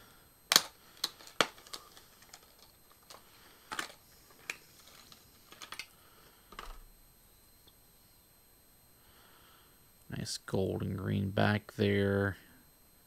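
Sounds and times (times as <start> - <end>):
plastic packaging rustles: 0.5 - 6.0.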